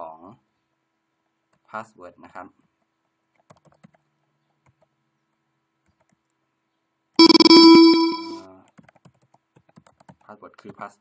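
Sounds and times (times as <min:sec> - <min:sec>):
loud electronic alert tone: 0:07.2 - 0:08.4.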